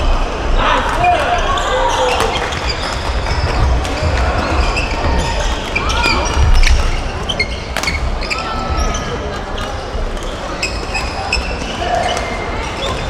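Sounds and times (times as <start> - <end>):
sneakers squeaking on court: 1.5 - 13.0.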